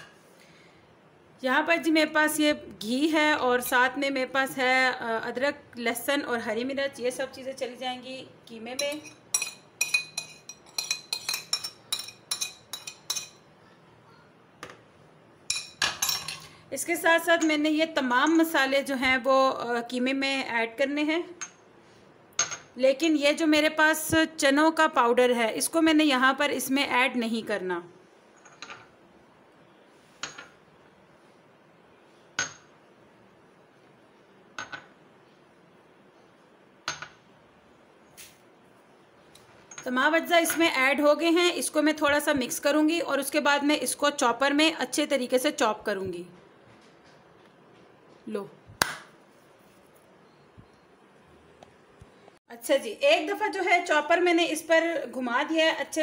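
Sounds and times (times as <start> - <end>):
metal spoon clinking against plate: 8.7 - 13.5, 15.5 - 16.5.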